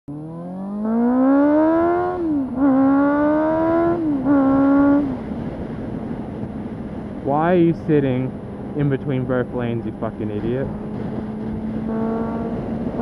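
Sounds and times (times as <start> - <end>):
motorcycle accelerating through gears: 0.1 - 6.5, 7.8 - 13.0
wind rush: 10.5 - 13.0.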